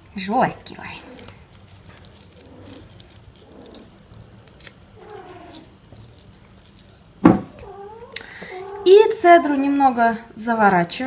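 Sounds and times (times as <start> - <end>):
lime being squeezed crackling: 0.6 - 9.2
dull thump: 7.2 - 7.5.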